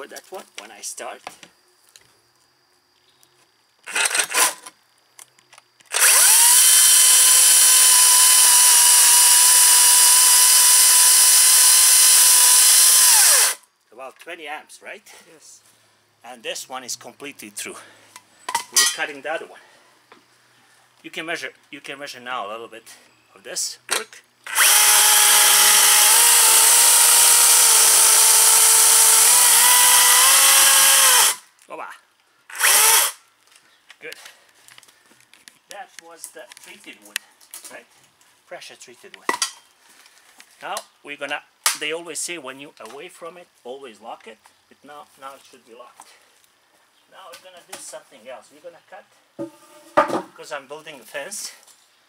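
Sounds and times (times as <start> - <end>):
cordless chainsaw whining: 3.8 - 4.7, 5.9 - 13.6, 24.4 - 31.4, 32.5 - 33.2
knocks: 49.4 - 50.3.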